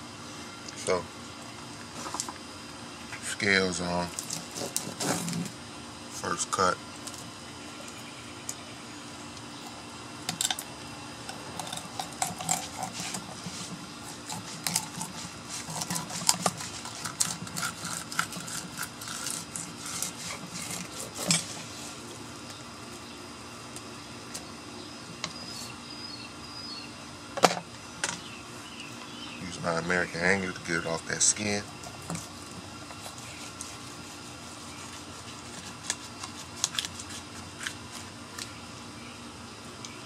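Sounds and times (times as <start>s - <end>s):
knife scraping fish scales: 11.6s - 22.0s, 31.7s - 38.1s.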